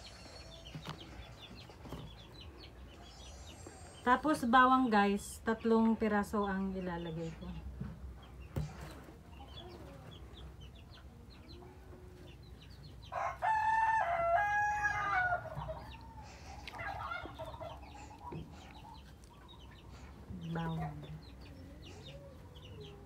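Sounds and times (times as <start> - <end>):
rooster crowing: 13.1 - 15.8.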